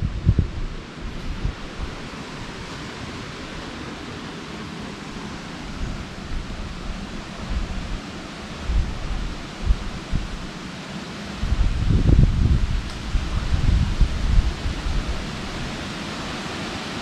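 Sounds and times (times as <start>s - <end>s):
wind rushing: 0.0s - 2.6s, 5.6s - 10.6s, 11.4s - 15.9s
wind gusts buffeting microphone: 0.0s - 17.0s.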